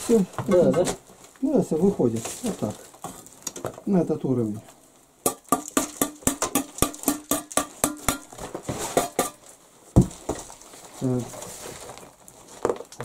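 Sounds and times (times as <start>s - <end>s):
metal tool knocking on brick: 5.3s - 8.4s, 9.0s - 9.4s.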